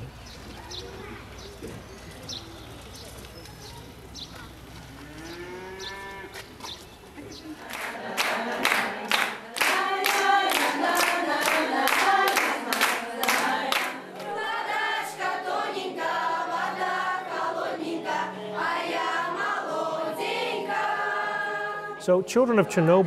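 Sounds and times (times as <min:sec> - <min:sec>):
children singing together: 0:07.2 - 0:22.0.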